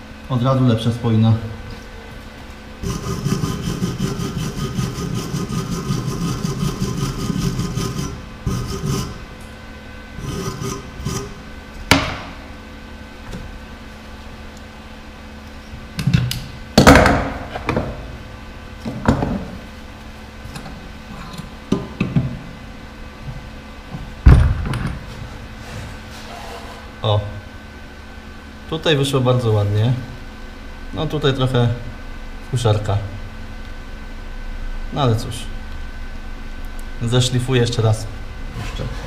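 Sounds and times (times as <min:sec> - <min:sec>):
wire brush scrubbing metal: 0:02.8 - 0:09.3, 0:10.2 - 0:11.5
tools knocking and clattering: 0:24.0 - 0:25.2.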